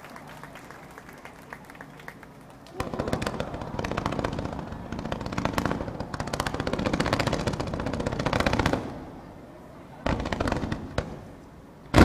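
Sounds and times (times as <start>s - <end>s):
fireworks bangs and crackling: 2.7s - 12.0s.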